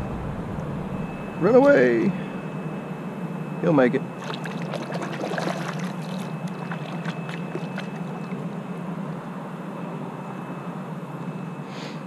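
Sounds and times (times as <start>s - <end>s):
steady low hum: 0.0s - 11.7s
kayak paddle splashing water: 4.2s - 8.4s
water dripping off paddle: 4.2s - 8.4s.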